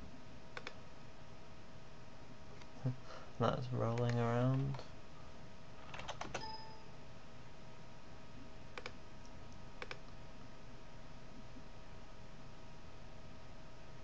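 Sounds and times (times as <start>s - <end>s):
faint hum and hiss: 0.0s - 14.0s
computer mouse clicks: 0.6s - 0.8s, 3.9s - 4.8s, 8.8s - 10.2s.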